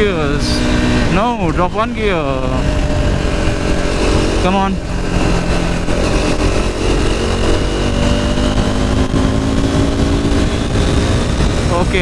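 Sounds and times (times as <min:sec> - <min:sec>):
motorcycle engine accelerating: 0:00.0 - 0:12.0
wind rush on microphone: 0:00.0 - 0:12.0.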